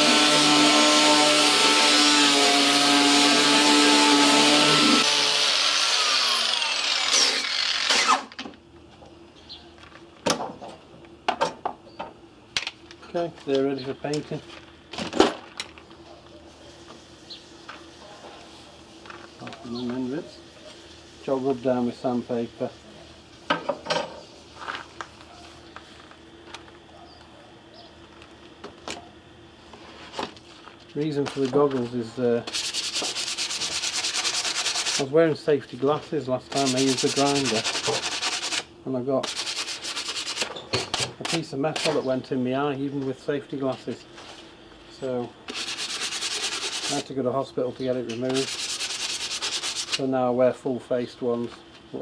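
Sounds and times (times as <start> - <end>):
angle grinder sanding metal: 0.0 - 8.2, 32.5 - 35.1, 36.5 - 40.5, 45.5 - 47.1, 48.2 - 50.0.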